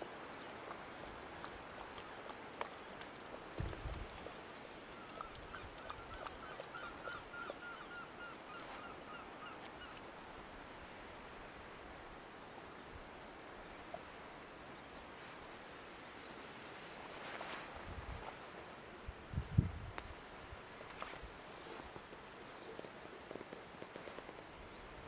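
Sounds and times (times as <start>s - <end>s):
seabird calling: 4.9s - 10.1s
wind hiss: 17.0s - 22.5s.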